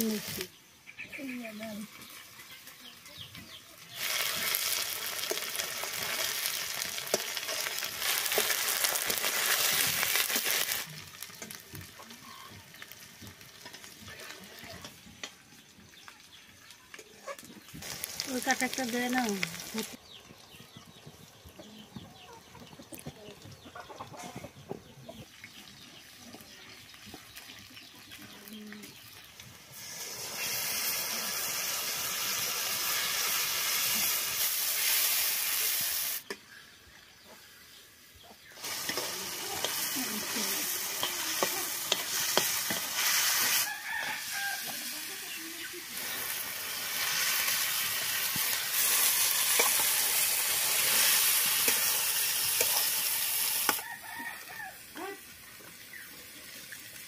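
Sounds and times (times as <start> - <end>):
meat sizzling in hot oil: 0.0 - 0.6, 1.7 - 16.7, 17.8 - 20.0, 25.3 - 36.6, 38.0 - 57.0
metal spatula scraping pan: 38.7 - 43.7.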